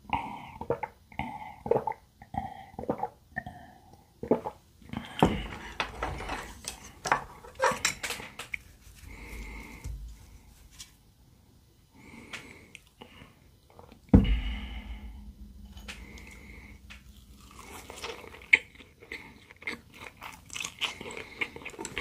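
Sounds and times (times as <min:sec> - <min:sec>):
person gulping a drink: 0:00.1 - 0:05.7, 0:13.7 - 0:22.0.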